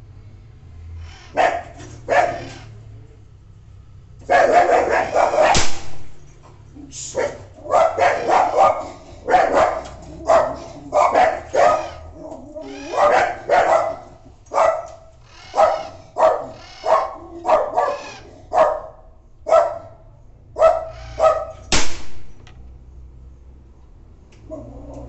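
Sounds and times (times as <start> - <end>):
dog barking: 1.3 - 2.7, 4.2 - 5.8, 7.0 - 21.7
air rifle shot: 5.4 - 6.2, 21.7 - 22.4.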